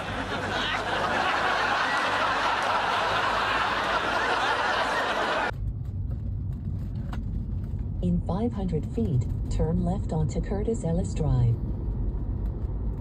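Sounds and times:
audience laughter: 0.0 - 5.5.

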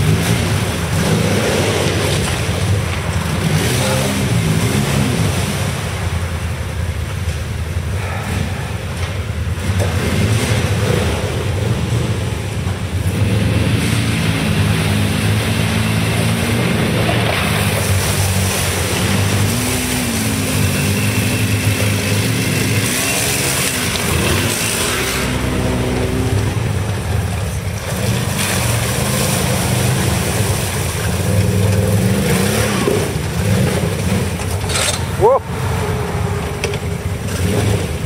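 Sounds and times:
atv engines revving: 0.0 - 38.0
water splashing from tyres: 0.0 - 38.0.

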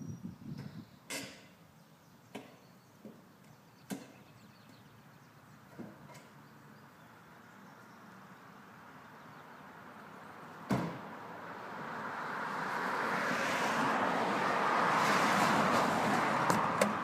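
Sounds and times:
sharp knocks and clicks: 16.5 - 17.0.

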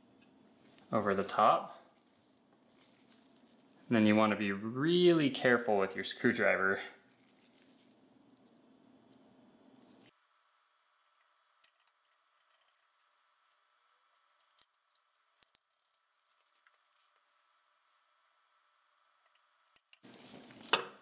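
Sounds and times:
gloved hands handling noise: 2.6 - 4.3.

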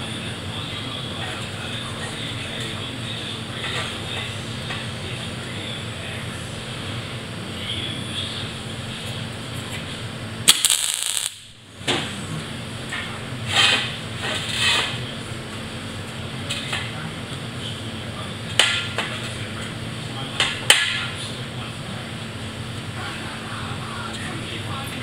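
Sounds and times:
steady low hum: 0.0 - 25.0
welder crackling bursts: 10.4 - 11.6
welder hissing: 10.5 - 11.4.

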